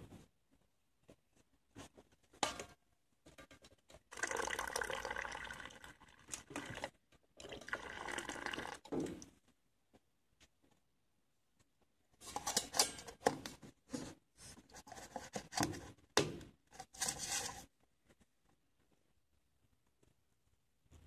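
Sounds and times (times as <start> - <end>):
rustling scraping and clicks: 16.8 - 18.3.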